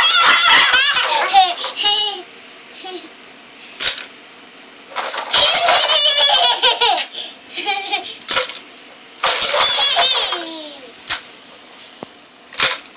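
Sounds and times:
small child laughing: 0.0s - 3.2s, 5.4s - 8.3s, 9.4s - 11.0s
toy truck engine sound effect: 5.0s - 7.0s, 9.2s - 10.9s.

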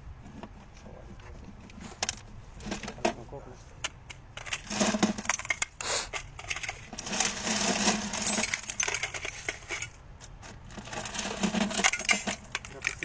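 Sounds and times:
brass cartridges clinking: 3.8s - 10.0s, 10.7s - 13.0s.

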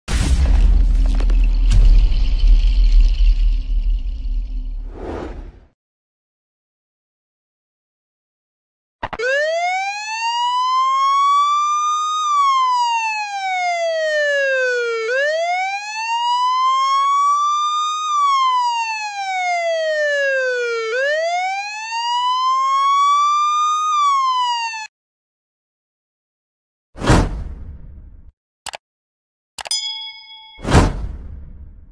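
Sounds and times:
police siren wailing: 9.1s - 24.9s.

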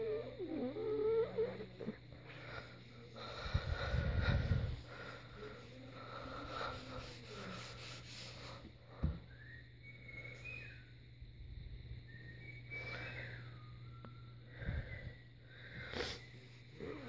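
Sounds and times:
low steady hum: 0.0s - 17.0s
sponge scrubbing a wall: 6.2s - 8.7s.

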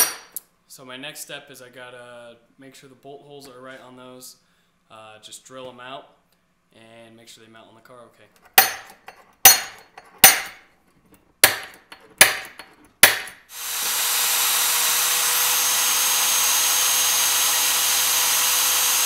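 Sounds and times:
electric drill drilling steel: 13.5s - 19.0s.

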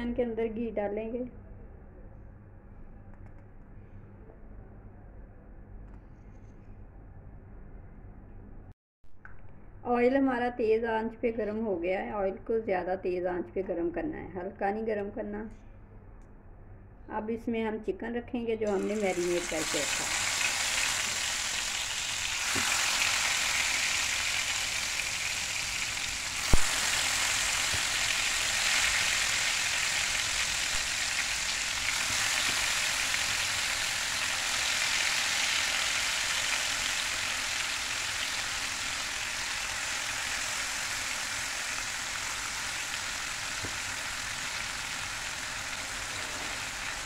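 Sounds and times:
chicken sizzling in oil: 18.7s - 47.0s.

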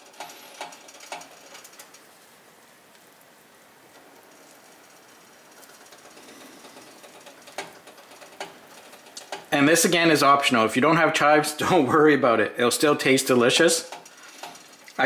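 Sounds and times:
food sizzling in a pan: 0.0s - 10.1s, 13.1s - 15.0s.

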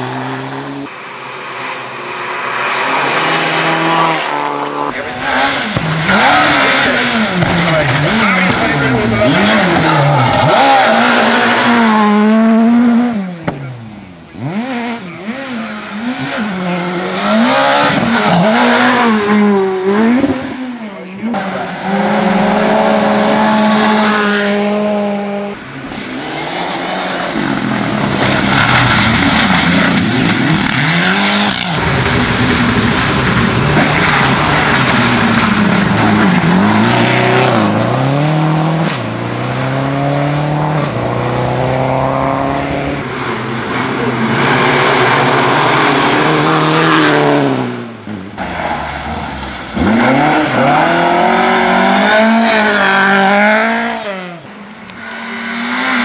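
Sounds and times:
rally car engines revving: 0.0s - 56.0s.

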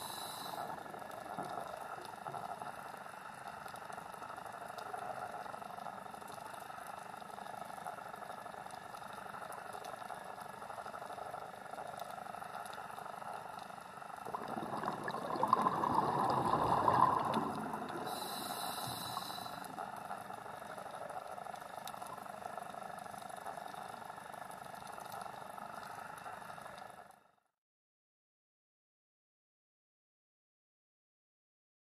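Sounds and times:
underwater hiss: 0.0s - 2.6s, 14.2s - 20.8s
scuba exhale bubbles rushing: 14.2s - 20.3s.

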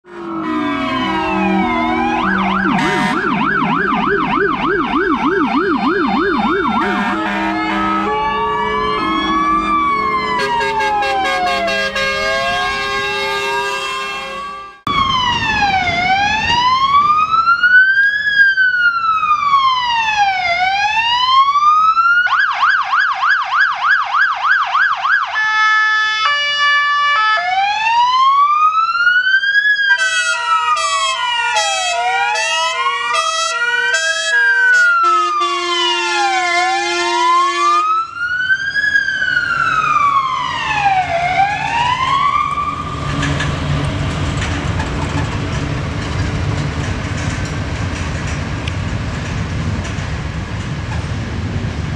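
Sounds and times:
air horn blasts: 0.0s - 3.6s, 6.7s - 14.9s, 29.9s - 38.0s
fire engine siren: 0.0s - 47.4s
diesel truck engine: 0.1s - 20.8s, 29.9s - 51.9s.

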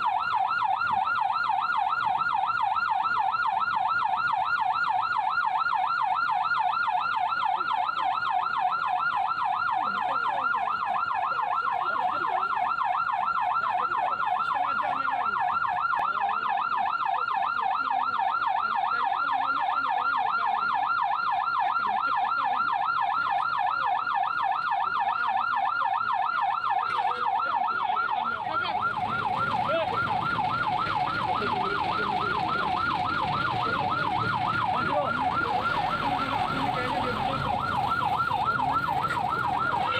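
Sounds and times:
siren fast yelp: 0.0s - 39.9s
traffic rumble: 20.0s - 39.9s.

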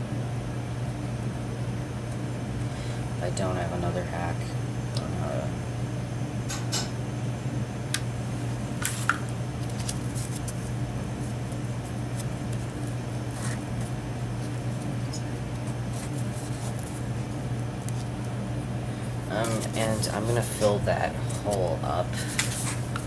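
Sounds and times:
steady low hum: 0.0s - 23.0s
cardboard rustling: 8.8s - 18.2s, 19.3s - 23.0s.

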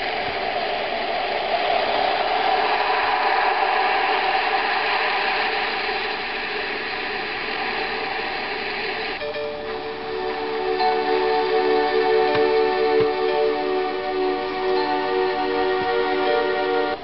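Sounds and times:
ocean waves hiss: 0.0s - 16.9s
soft tranquil music: 9.2s - 17.0s.

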